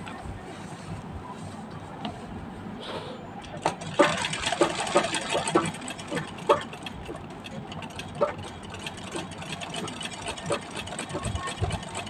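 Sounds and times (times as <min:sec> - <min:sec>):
sewing machine stitch clacks: 0:03.4 - 0:12.0.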